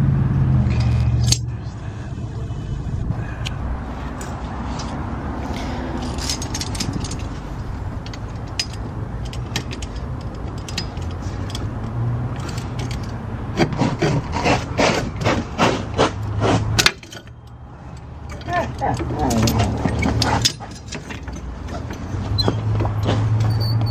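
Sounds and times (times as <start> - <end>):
steady low rumble: 0.0 - 14.8
metal scraping and clicking: 4.2 - 23.7.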